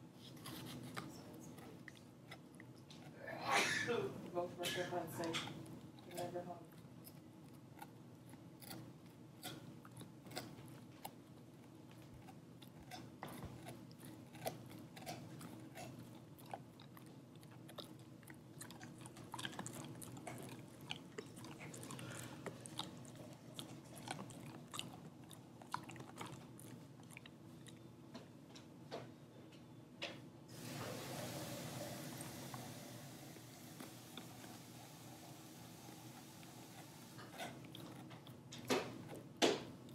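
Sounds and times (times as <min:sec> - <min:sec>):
dog gnawing on rawhide: 0:04.3 - 0:27.8, 0:36.1 - 0:39.9.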